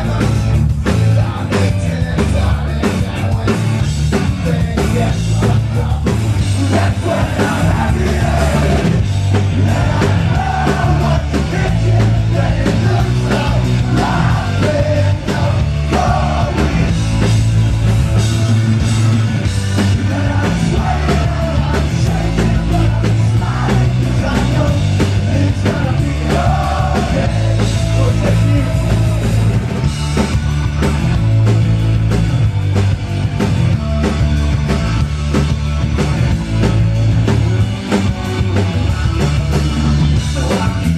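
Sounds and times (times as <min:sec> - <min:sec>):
man singing lead vocal: 0:00.0 - 0:17.2, 0:19.8 - 0:29.5, 0:38.8 - 0:40.9
drum kit: 0:00.0 - 0:40.9
electric guitar: 0:00.0 - 0:40.9
heavy pulsing bass line: 0:00.0 - 0:40.9.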